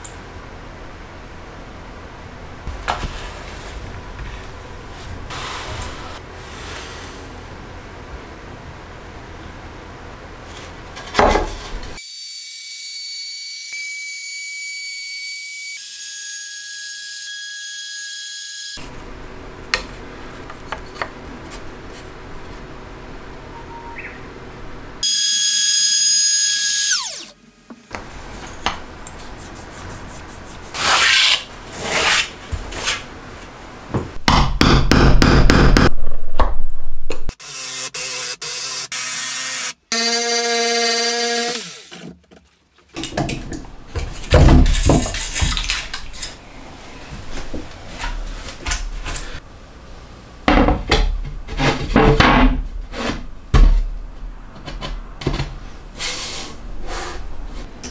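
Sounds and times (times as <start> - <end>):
cordless drill boring into wood: 25.0 - 27.4, 37.4 - 42.0
router whining at high speed: 25.1 - 27.4.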